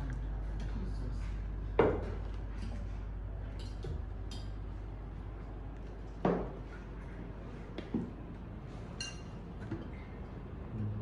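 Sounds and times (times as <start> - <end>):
steady low hum: 0.0 - 11.0
cutlery clinking on plates: 8.9 - 9.9.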